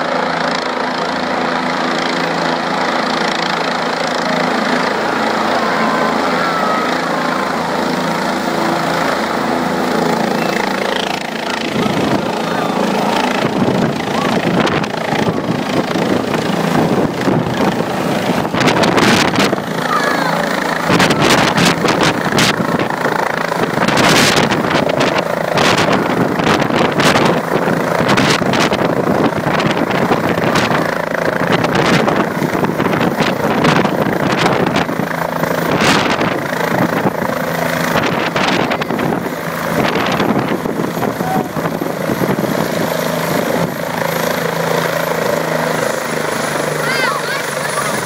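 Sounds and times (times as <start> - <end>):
helicopter turbine and rotor: 0.0 - 48.0
rotor wash buffeting microphone: 2.0 - 48.0.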